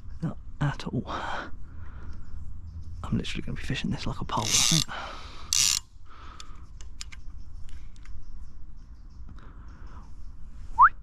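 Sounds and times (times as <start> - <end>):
fishing tackle clicks and rattles: 4.4 - 8.2.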